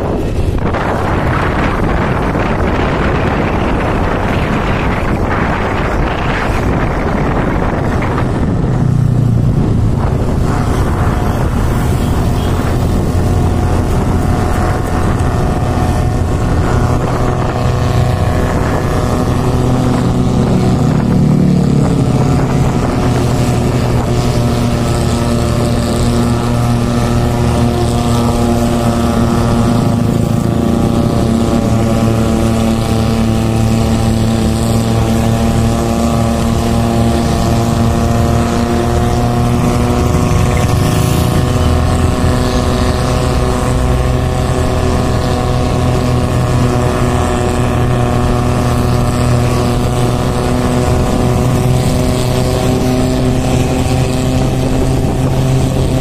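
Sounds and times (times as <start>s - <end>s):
motorcycle engine running: 0.0s - 56.0s.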